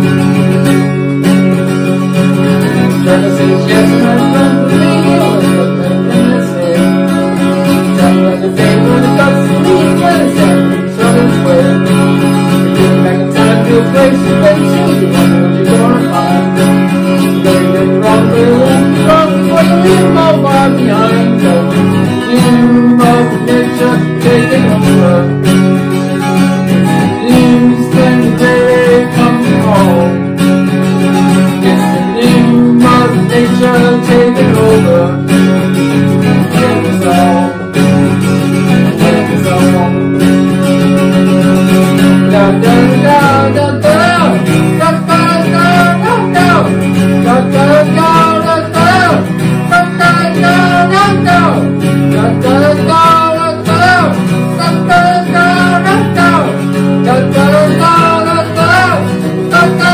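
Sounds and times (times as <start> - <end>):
acoustic guitar strummed: 0.0 - 59.9.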